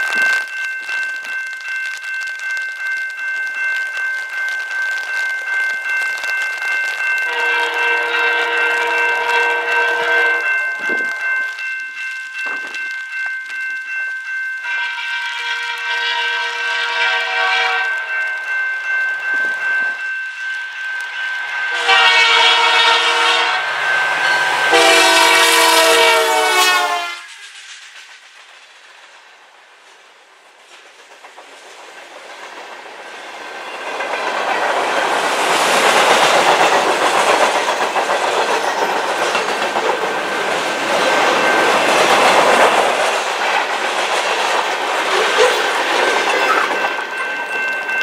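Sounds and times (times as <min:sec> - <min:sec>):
locomotive horn blasts: 0:07.3 - 0:10.6, 0:14.6 - 0:18.1, 0:21.7 - 0:23.8, 0:24.6 - 0:27.3
freight cars clickety-clack: 0:24.8 - 0:48.0.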